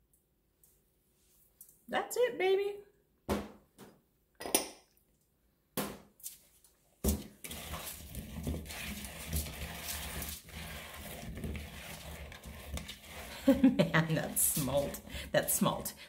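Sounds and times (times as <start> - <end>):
potatoes tossed in a bowl: 7.1 - 15.7.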